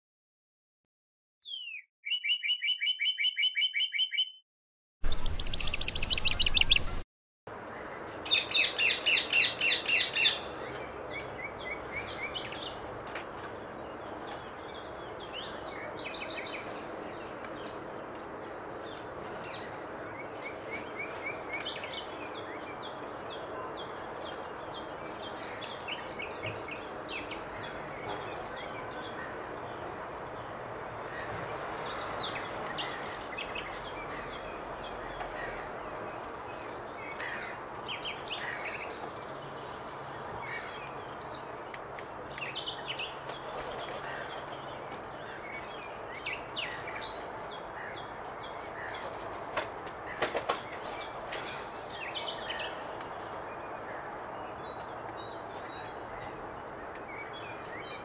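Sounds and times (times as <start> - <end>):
bird chirps and whistles: 1.4 - 4.4
outdoor background noise: 5.0 - 58.0.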